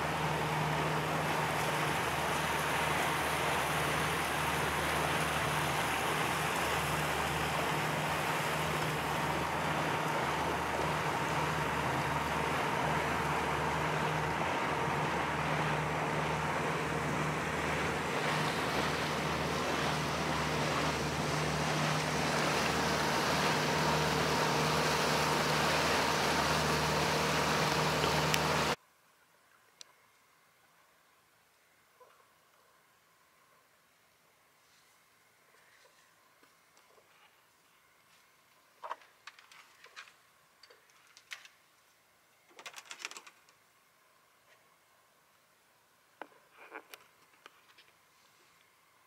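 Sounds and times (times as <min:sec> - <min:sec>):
outboard motor running: 0:00.0 - 0:28.8
water rushing along hull: 0:00.0 - 0:28.8.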